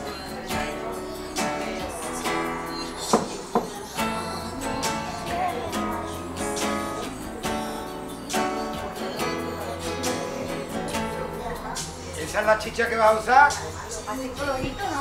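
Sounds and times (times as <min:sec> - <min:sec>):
woman singing: 0:00.0 - 0:12.2, 0:13.5 - 0:15.0
acoustic guitar strumming: 0:00.0 - 0:15.0.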